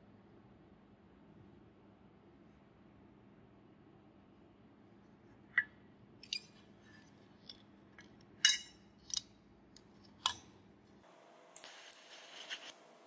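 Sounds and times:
welding arc crackling: 11.5 - 13.0.

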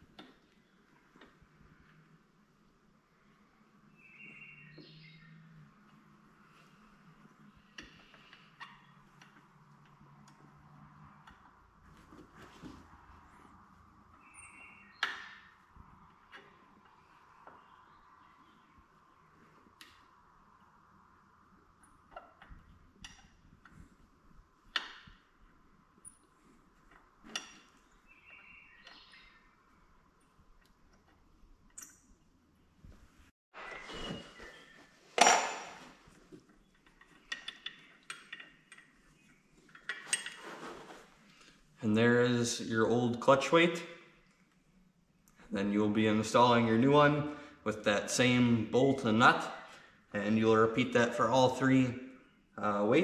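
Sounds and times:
metal tools clinking: 39.7 - 40.7.

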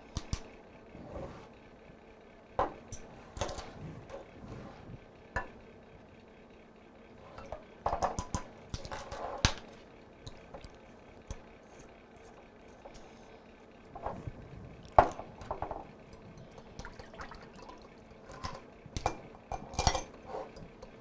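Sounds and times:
utensils and dishes clinking: 18.3 - 20.7.

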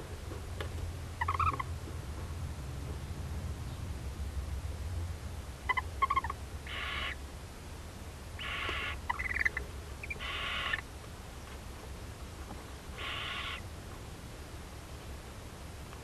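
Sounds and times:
owl twittering chirps: 1.2 - 1.7, 5.6 - 7.2, 8.4 - 10.9, 13.0 - 13.6
owl hissing screeches: 5.7 - 7.2, 8.4 - 10.8, 13.0 - 13.6.

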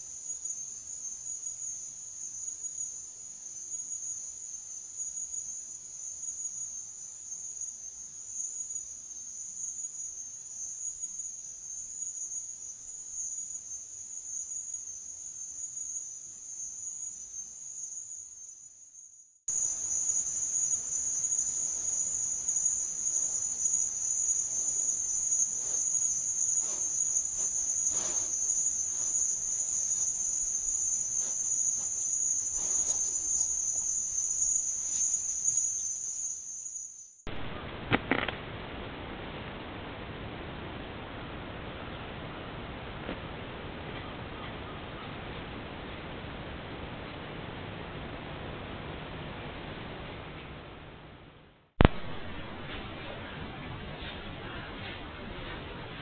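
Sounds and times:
crickets trilling: 0.0 - 37.2.

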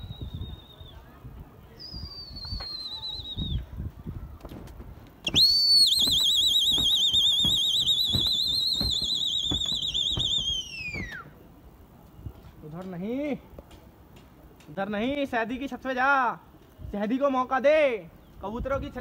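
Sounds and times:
loud high warbling whistle: 5.2 - 11.3.

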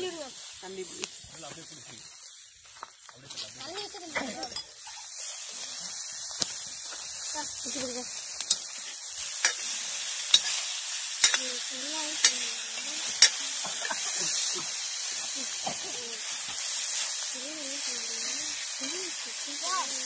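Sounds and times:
food sizzling in a pan: 0.0 - 20.0
metal ladle scraping a pan: 8.5 - 11.4.

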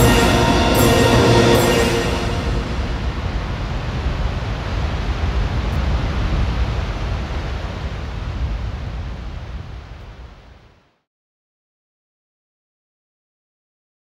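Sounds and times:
deep rumble: 0.0 - 5.7
steady rushing noise: 0.0 - 8.3.

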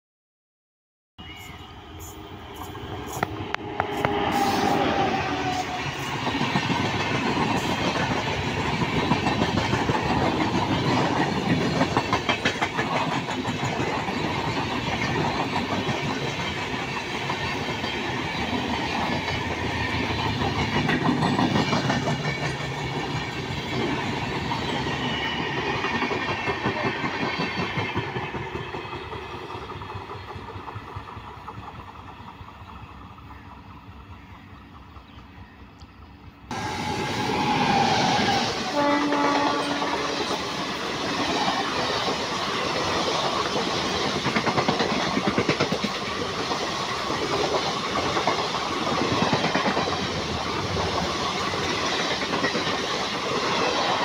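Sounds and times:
train wheels clattering over rails: 2.6 - 33.8, 36.5 - 54.0.

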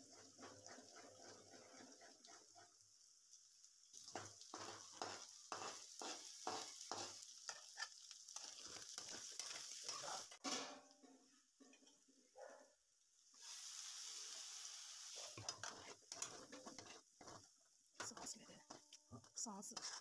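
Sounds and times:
metal spatula scraping pan: 0.0 - 2.8, 4.1 - 10.8, 15.2 - 20.0
egg sizzling in a wok: 0.0 - 10.4, 13.1 - 20.0.

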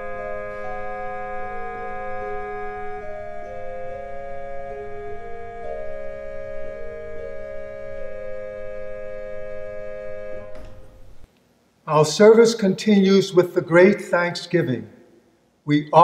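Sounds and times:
organ playing sustained chords: 0.0 - 11.3.

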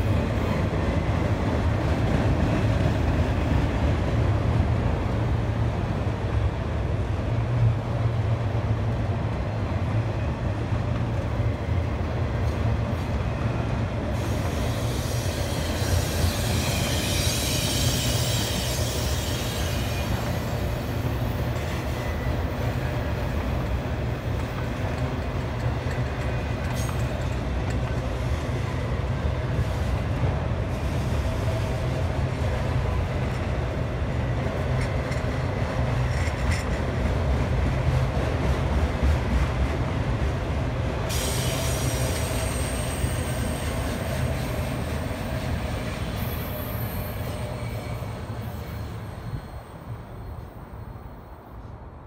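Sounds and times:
steel wheels rumbling on rails: 0.0 - 50.9
high metallic wheel squeal: 14.2 - 20.8, 41.1 - 51.2.

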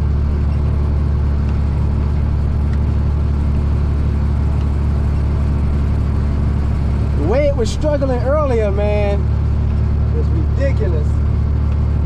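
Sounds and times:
tractor engine running under load: 0.0 - 12.0.

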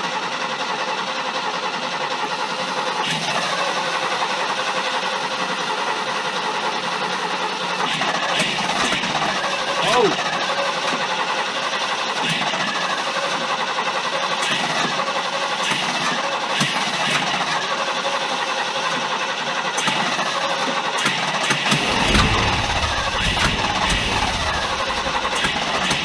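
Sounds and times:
engine idling: 0.0 - 26.0.

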